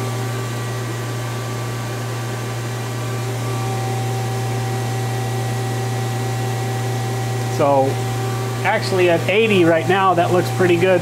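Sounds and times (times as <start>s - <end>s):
lathe machine hum: 0.0s - 11.0s.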